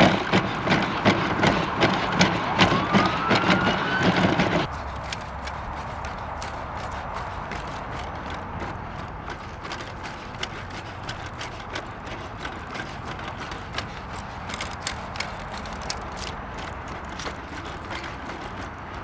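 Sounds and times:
robot legs clicking: 0:00.0 - 0:19.0
traffic hum: 0:00.0 - 0:19.0.

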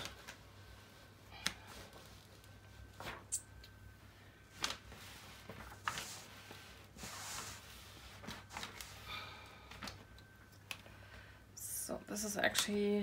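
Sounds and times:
plastic film rustling and crinkling: 0:00.0 - 0:03.4, 0:04.5 - 0:09.0.

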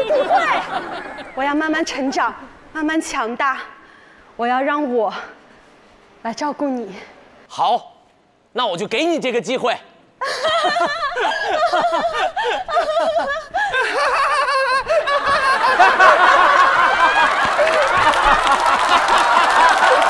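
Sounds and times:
studio audience laughing: 0:00.0 - 0:01.4, 0:10.2 - 0:20.0
hearty laughter: 0:10.2 - 0:20.0.

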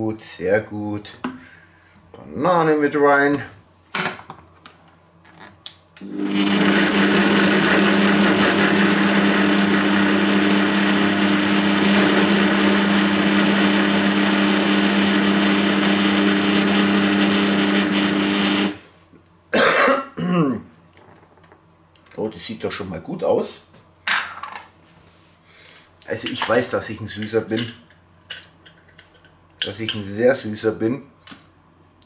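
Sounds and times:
blender running: 0:06.0 - 0:18.8.

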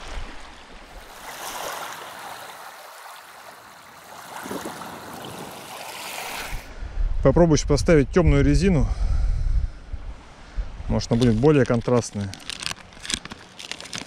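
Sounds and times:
waves lapping at shore: 0:00.0 - 0:06.7.

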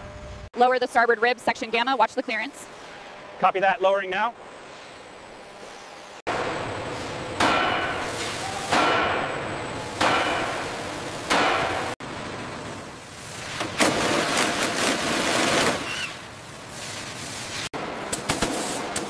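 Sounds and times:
hammer striking metal: 0:07.4 - 0:12.0.

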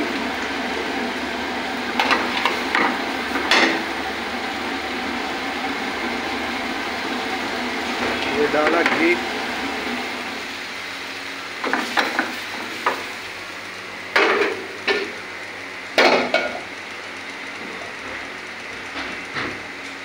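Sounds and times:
seeds sizzling in hot oil: 0:00.0 - 0:17.9
pans clanking on burner grate: 0:02.0 - 0:03.9, 0:11.6 - 0:13.1, 0:14.1 - 0:15.2, 0:16.0 - 0:16.6.

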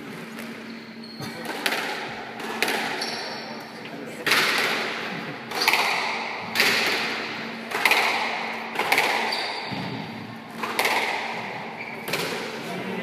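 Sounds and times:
squash ball cracks: 0:01.4 - 0:03.0, 0:04.2 - 0:11.5, 0:12.1 - 0:12.6.

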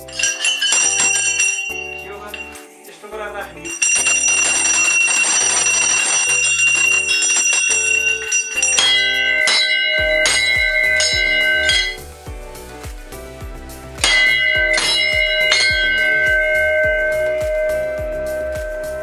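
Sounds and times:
bell shaken rapidly: 0:00.0 - 0:12.3, 0:13.8 - 0:19.0
low bell struck: 0:07.9 - 0:19.0.

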